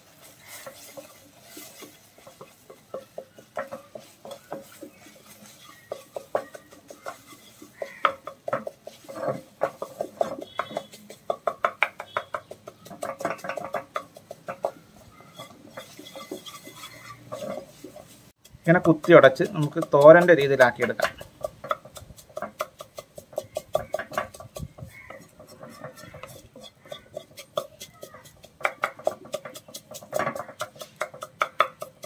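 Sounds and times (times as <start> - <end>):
spatula scraping and knocking pan: 0.0 - 32.0.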